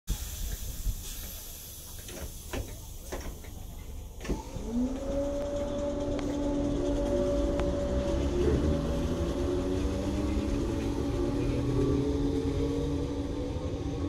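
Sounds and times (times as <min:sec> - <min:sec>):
electric train motor whine: 0:04.2 - 0:14.0.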